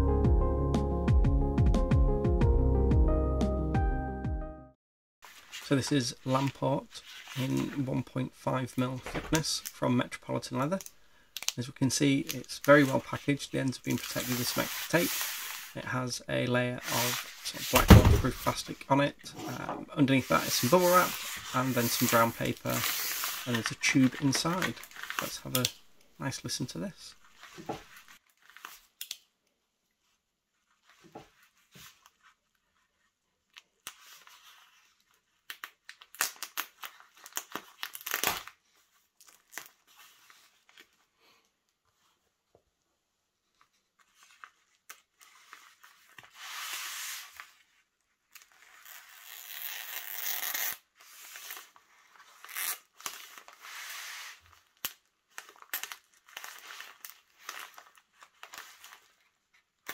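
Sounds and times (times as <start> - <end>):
plastic wrap crinkling and tearing: 20.3 - 26.0, 33.6 - 41.0, 48.2 - 59.9.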